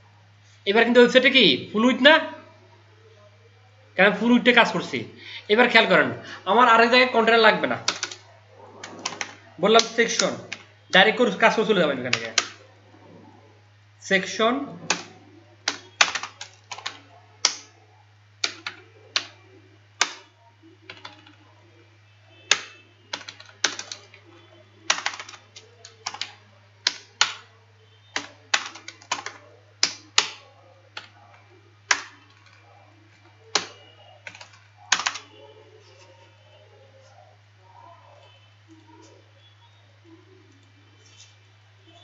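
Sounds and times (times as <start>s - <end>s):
typing on keyboard: 7.8s - 8.2s, 8.8s - 10.7s, 12.1s - 12.6s, 14.8s - 17.7s, 18.4s - 19.4s, 20.0s - 21.4s, 22.5s - 24.3s, 24.9s - 27.5s, 28.1s - 31.2s, 31.9s - 32.7s, 33.5s - 35.4s.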